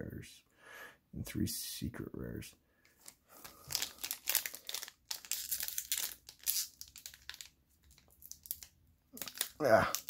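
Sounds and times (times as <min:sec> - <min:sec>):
foil pack crinkling: 0:03.0 - 0:10.0.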